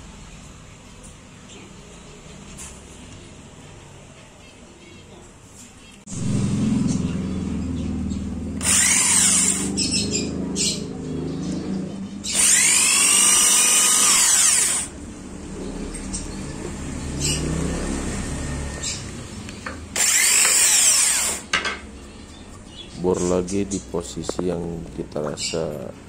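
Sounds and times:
electric drill boring into wood: 8.6s - 10.0s, 12.3s - 14.9s, 19.9s - 21.5s.

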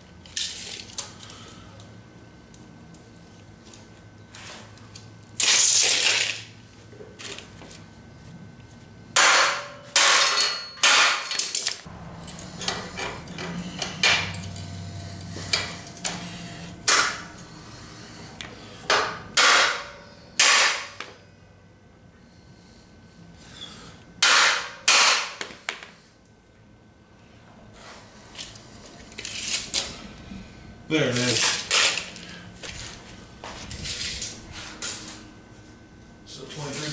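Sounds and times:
hammer striking steel: 9.2s - 11.4s, 18.9s - 21.1s, 24.2s - 25.5s.

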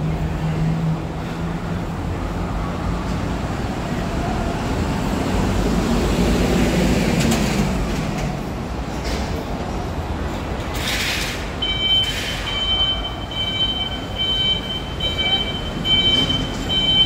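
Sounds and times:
street traffic rumble: 0.0s - 17.0s
high electronic beeping: 11.6s - 17.0s.

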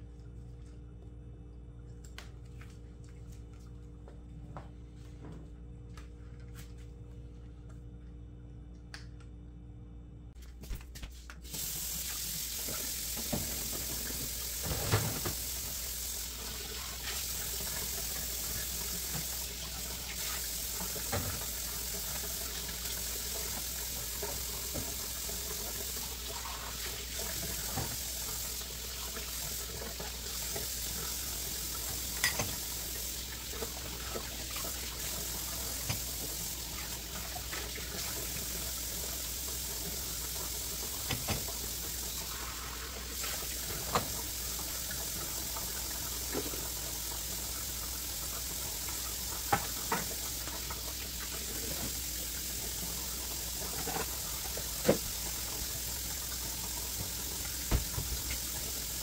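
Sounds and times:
tap running into sink: 31.8s - 32.7s, 35.7s - 36.4s, 40.8s - 41.9s, 43.6s - 44.3s, 49.4s - 51.0s, 53.6s - 55.6s, 56.3s - 59.0s.

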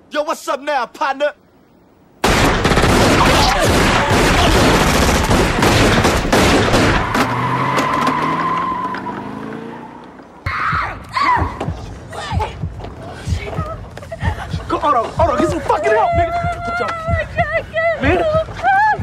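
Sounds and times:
rapid gunshots: 2.2s - 7.2s
car engine revving: 6.4s - 10.4s.

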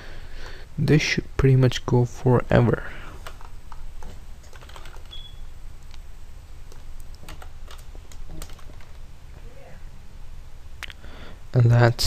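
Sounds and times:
keyboard keys clicking: 4.4s - 5.2s, 6.7s - 9.0s.

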